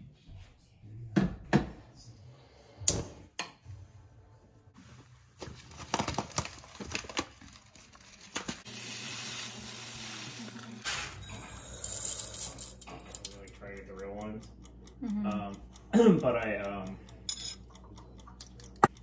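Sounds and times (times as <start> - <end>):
water pouring into a pot: 8.6 - 10.8.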